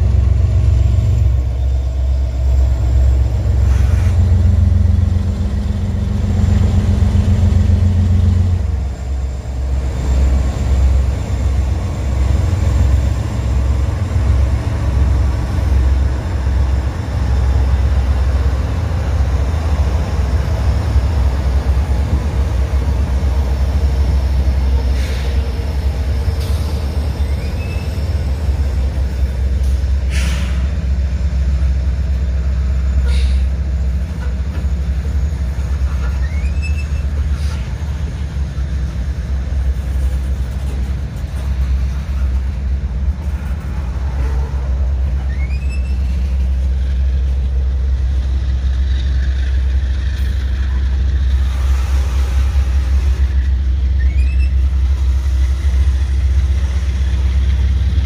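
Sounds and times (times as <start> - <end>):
train cars clanking: 0.0 - 58.0
wheels rumbling on rails: 0.0 - 58.0
high squeaks: 35.8 - 37.2, 45.0 - 46.6, 53.9 - 54.8.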